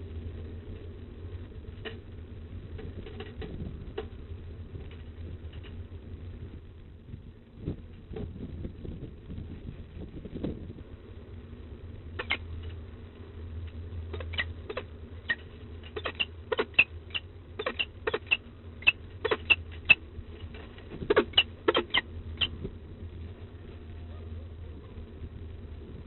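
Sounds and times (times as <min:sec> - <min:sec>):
low electrical hum: 0:00.0 - 0:26.0
beak and feet tapping on metal: 0:14.1 - 0:22.6.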